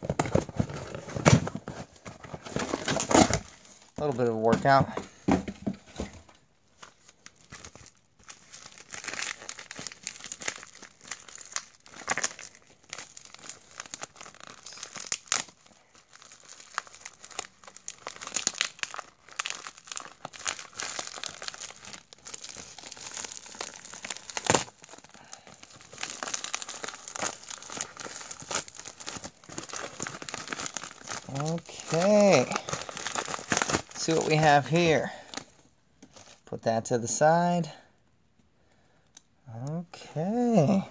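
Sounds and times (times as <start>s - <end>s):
paper crinkling and tearing: 6.8s - 35.5s.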